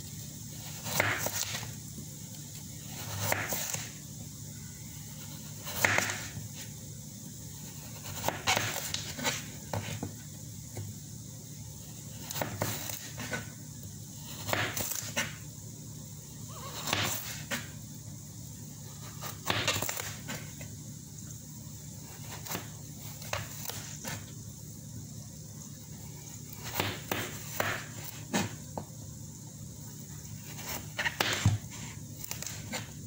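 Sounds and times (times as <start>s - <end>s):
steady low hum: 0.0s - 33.0s
knife cutting carrots on board: 5.4s - 6.4s, 16.8s - 17.7s.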